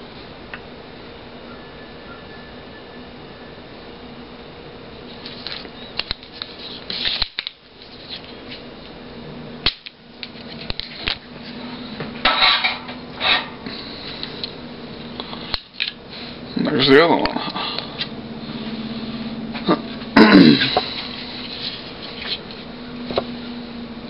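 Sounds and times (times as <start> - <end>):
faint steady hum: 0.0 - 24.0
circuit board rustling scrapes: 6.3 - 8.7, 20.9 - 22.7.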